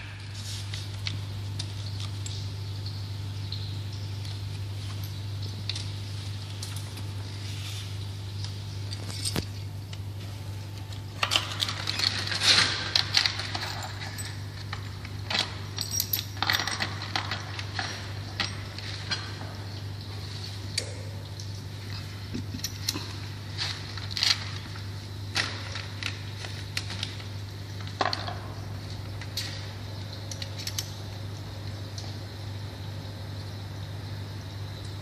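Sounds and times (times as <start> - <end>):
steady low hum: 0.0 - 35.0
metal pipe fittings clinking: 8.8 - 9.7, 11.2 - 20.1.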